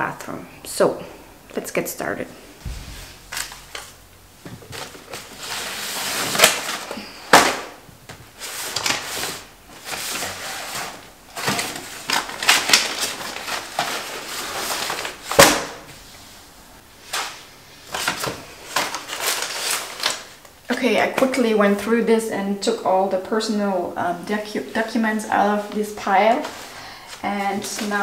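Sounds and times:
sharp knocks and clatters: 2.6 - 5.0.

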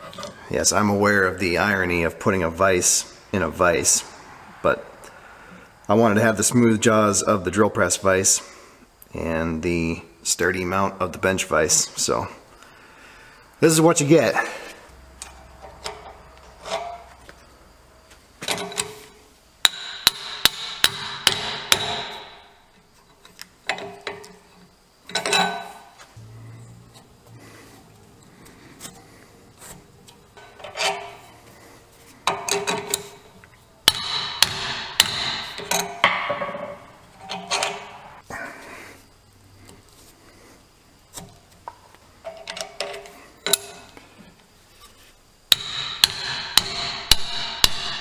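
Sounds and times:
scraping: 14.6 - 19.2, 22.9 - 33.6
sharp knocks of metal tube: 19.6 - 22.4, 33.9 - 36.5, 45.5 - 48.0.

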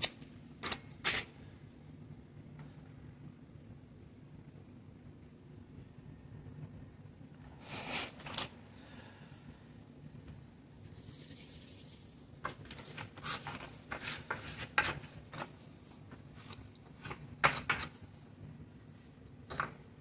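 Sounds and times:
low steady hum: 0.0 - 20.0
clicks and scrapes of clay handling: 12.6 - 18.0.

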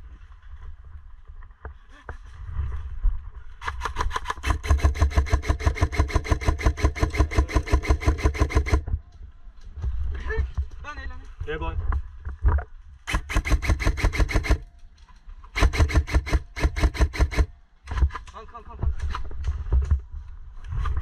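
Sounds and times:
airsoft rifle full-auto burst: 3.6 - 8.8, 13.1 - 14.7, 15.6 - 17.5.

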